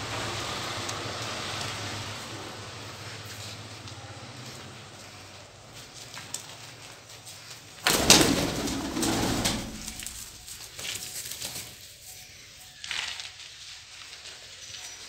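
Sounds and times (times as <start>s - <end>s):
pigeons cooing: 7.9s - 10.4s.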